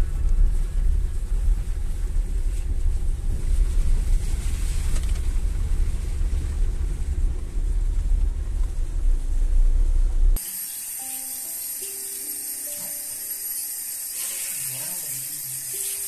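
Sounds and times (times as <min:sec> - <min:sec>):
car cabin road rumble: 0:00.0 - 0:10.4
wind noise: 0:00.0 - 0:10.4
hiss: 0:10.4 - 0:16.0.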